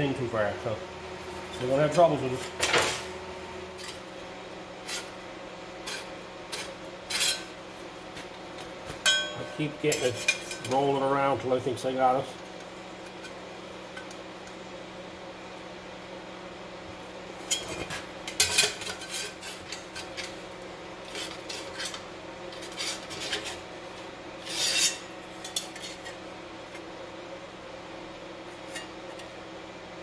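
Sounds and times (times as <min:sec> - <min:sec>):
low shop hum: 0:00.0 - 0:30.0.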